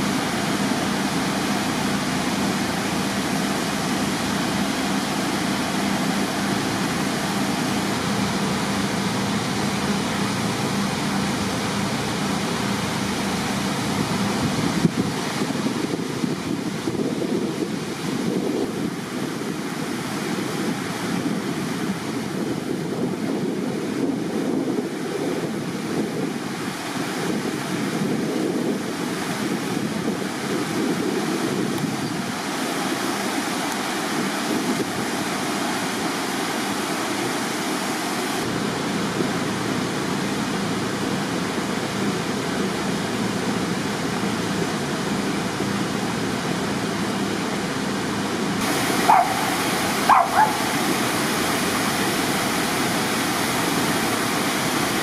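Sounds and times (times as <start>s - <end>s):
water rushing: 0.0s - 55.0s.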